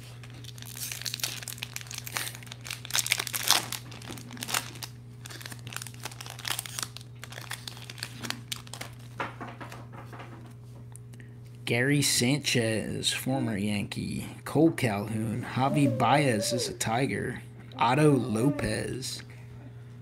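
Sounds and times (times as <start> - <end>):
foil wrapper crinkling and tearing: 0.0 - 9.2.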